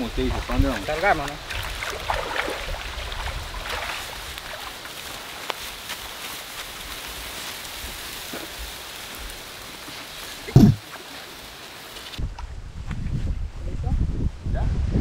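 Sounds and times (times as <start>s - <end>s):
water dripping and splashing: 0.0s - 12.2s
loud low thump: 10.5s - 10.8s.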